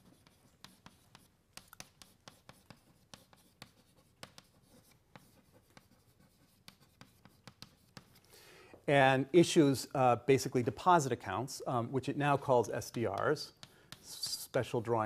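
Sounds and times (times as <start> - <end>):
chalk tapping and scratching: 0.0 - 8.3, 12.3 - 15.0.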